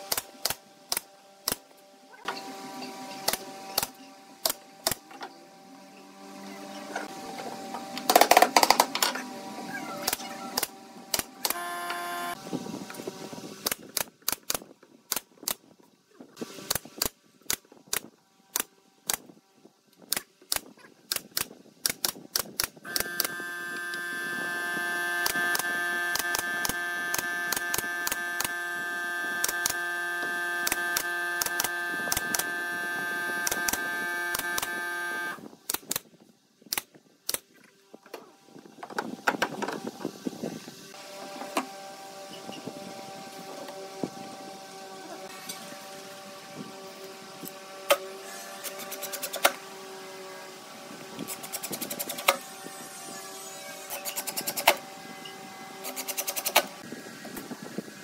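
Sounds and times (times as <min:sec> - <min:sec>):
steady hum: 0:22.9 - 0:35.5
nail gun firing into wood: 0:30.6 - 0:32.5, 0:54.0 - 0:54.8.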